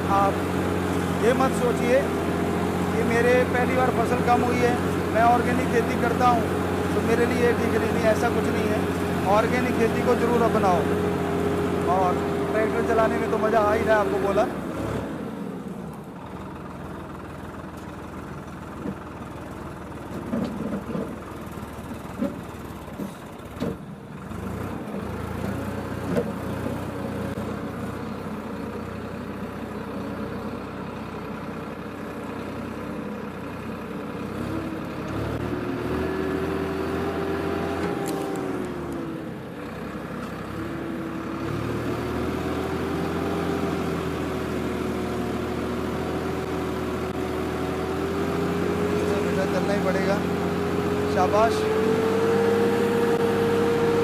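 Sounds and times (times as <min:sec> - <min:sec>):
tractor diesel engine: 0:00.0 - 0:54.0.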